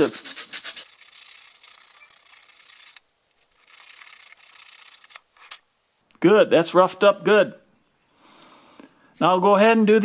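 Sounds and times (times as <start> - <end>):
sandpaper rubbing on plastic: 0.0 - 5.1.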